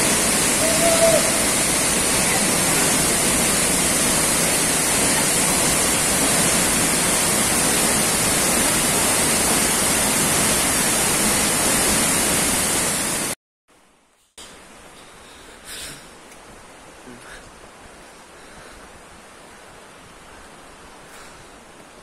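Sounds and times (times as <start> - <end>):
waterfall rushing: 0.0 - 13.4.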